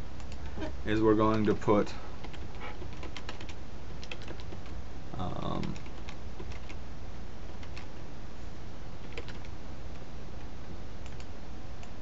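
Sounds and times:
low electrical hum and hiss: 0.0 - 12.0
keyboard keys clicking: 2.2 - 4.7, 5.4 - 6.8, 9.0 - 9.5.

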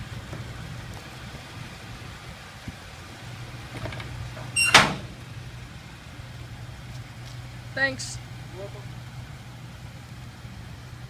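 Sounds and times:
truck engine idling: 0.0 - 11.0
metal hatch slamming shut: 3.8 - 5.2.

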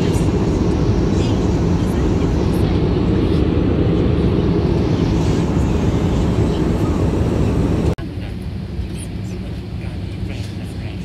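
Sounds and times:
rushing air: 0.0 - 8.0
airliner engines droning: 0.0 - 11.0.

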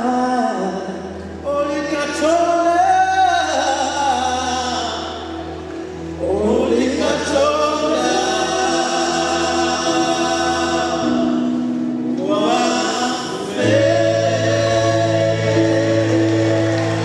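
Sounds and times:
choir singing held chords: 6.0 - 17.0
steady bass: 12.3 - 17.0.

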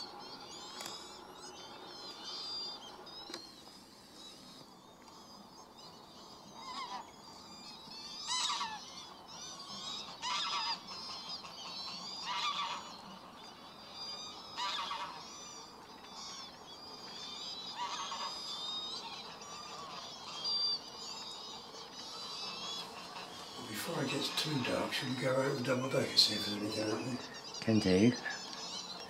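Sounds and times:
waterbirds calling: 0.0 - 29.0
geese honking: 8.3 - 8.8, 9.7 - 13.4, 14.5 - 15.8, 17.7 - 18.4, 21.5 - 29.0.

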